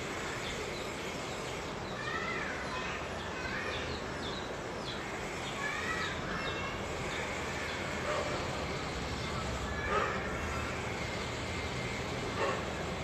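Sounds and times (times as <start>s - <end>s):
steady background noise: 0.0s - 13.0s
birds chirping: 0.2s - 8.0s.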